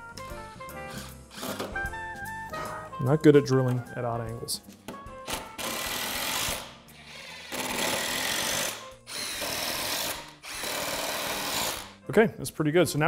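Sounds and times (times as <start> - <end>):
power drill boring into wood: 5.6 - 12.0.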